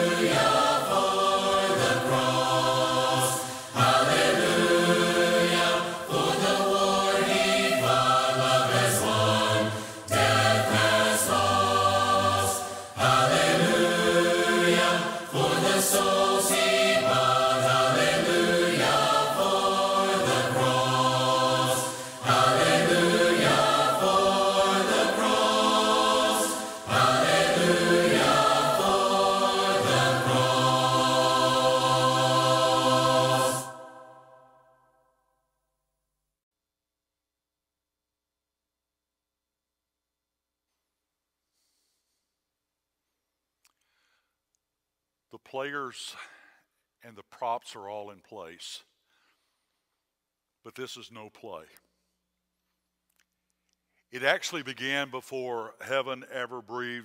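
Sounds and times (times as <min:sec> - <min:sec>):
vocal ensemble singing a hymn: 0:00.0 - 0:34.6.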